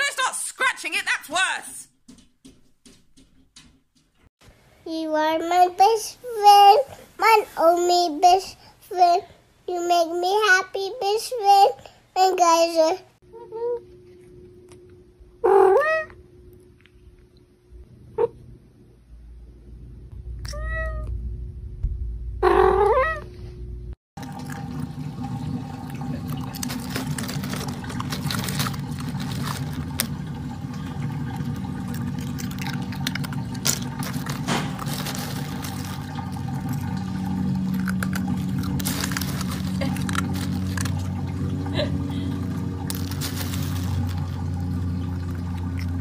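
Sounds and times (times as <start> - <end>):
low hum: 13.3 - 46.0
cat meowing: 20.4 - 21.1, 22.4 - 23.3
crackling and rustling noise: 26.4 - 30.6, 31.6 - 41.2, 42.8 - 44.6.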